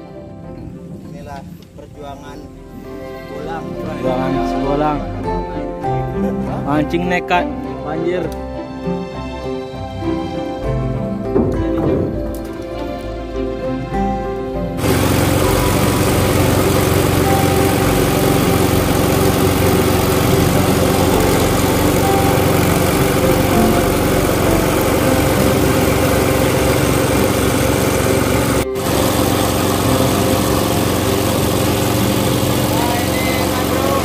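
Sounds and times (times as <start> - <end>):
boat motor running: 14.8 - 34.0.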